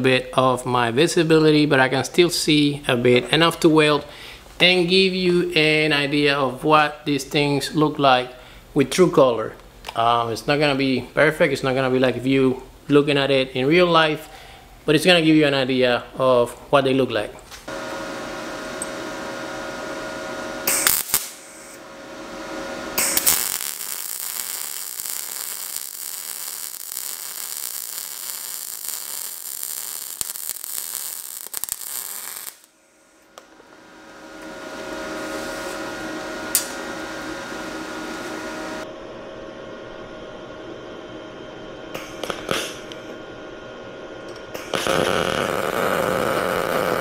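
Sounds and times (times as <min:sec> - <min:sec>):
steady hum: 0:17.2 - 0:47.0
welding arc crackling: 0:17.7 - 0:38.8, 0:44.5 - 0:47.0.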